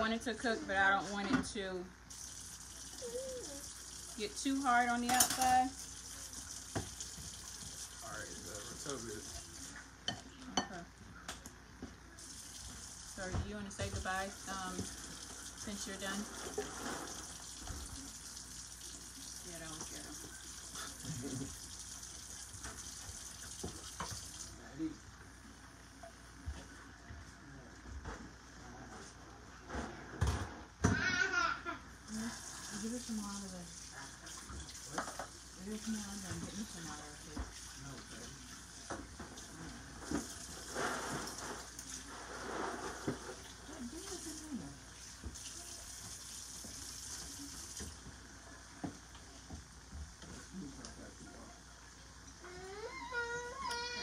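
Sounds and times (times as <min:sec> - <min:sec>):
shrimp frying in oil: 0:02.0 - 0:10.0, 0:12.2 - 0:24.6, 0:32.1 - 0:48.2
tap running into sink: 0:06.6 - 0:07.8, 0:22.5 - 0:24.4, 0:34.4 - 0:35.4.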